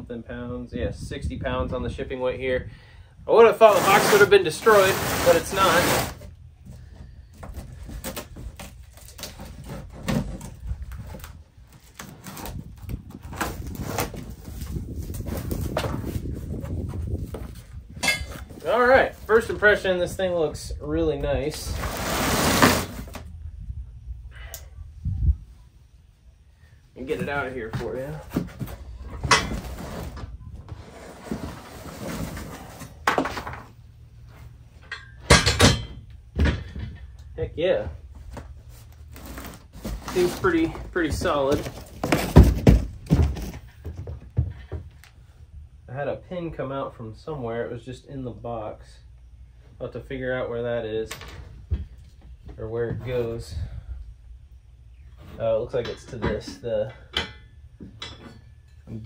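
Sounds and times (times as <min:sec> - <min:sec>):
cardboard box rustling and scraping: 0:03.5 - 0:06.3, 0:21.7 - 0:23.3, 0:27.2 - 0:33.6, 0:38.6 - 0:43.7
cardboard crackling: 0:38.8 - 0:43.6.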